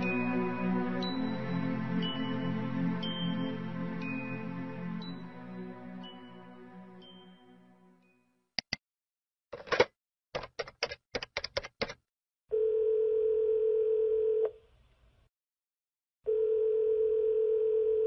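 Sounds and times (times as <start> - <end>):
keypad presses: 9.6 - 12.0
telephone ringback tone: 12.5 - 14.5, 16.3 - 18.0.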